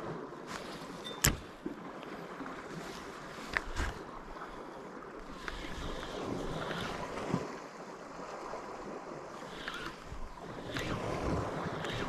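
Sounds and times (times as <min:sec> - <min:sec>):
sea waves washing on shore: 0:00.0 - 0:12.0
wind on microphone: 0:05.2 - 0:12.0.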